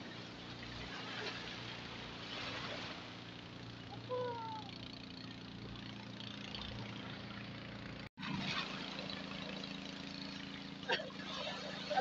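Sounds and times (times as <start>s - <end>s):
engine idling: 3.1s - 12.0s.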